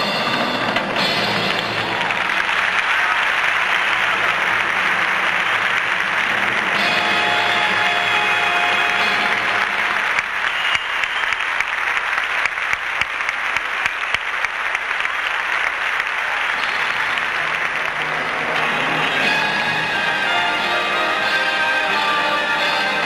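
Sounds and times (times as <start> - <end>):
music: 0.0 - 10.7, 16.6 - 23.0
audience applauding: 0.0 - 23.0.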